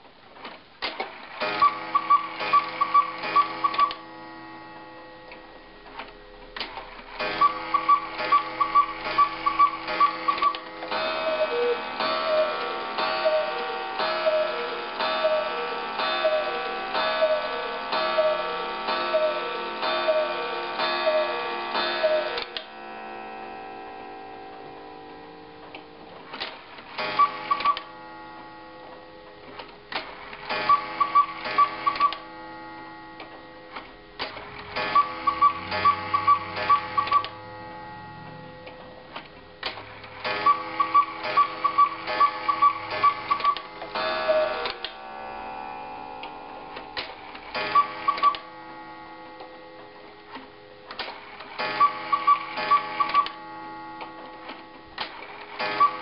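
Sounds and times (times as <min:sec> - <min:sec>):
clock ticking: 0:01.4 - 0:04.0, 0:06.0 - 0:22.7, 0:27.0 - 0:27.9, 0:30.4 - 0:32.3, 0:34.5 - 0:37.7, 0:38.6 - 0:45.0, 0:46.8 - 0:48.5, 0:51.6 - 0:53.4
cuckoo call: 0:01.6 - 0:04.0, 0:07.4 - 0:22.5, 0:30.7 - 0:32.2, 0:34.9 - 0:37.4, 0:40.4 - 0:44.9, 0:51.8 - 0:53.4, 0:55.7 - 0:56.0.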